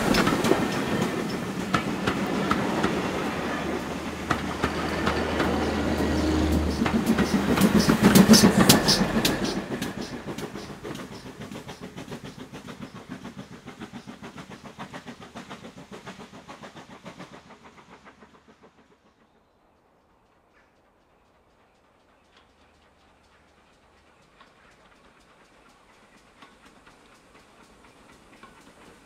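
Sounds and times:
train wheels clicking over rail joints: 0.0 - 29.0.

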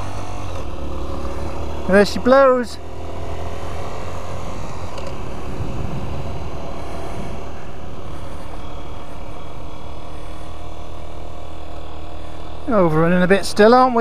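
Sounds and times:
motorcycle engine running: 0.0 - 14.0
wind noise on microphone: 5.3 - 8.3.

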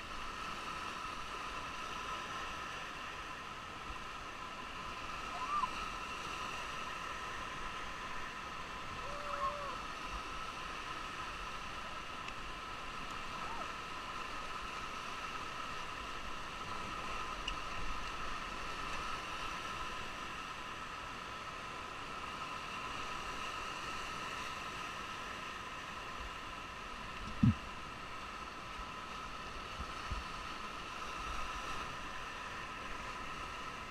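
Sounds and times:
whitewater rapids rushing: 0.0 - 33.9
voice-like cry: 5.3 - 5.8, 9.0 - 9.8
wind noise on microphone: 27.2 - 27.6.

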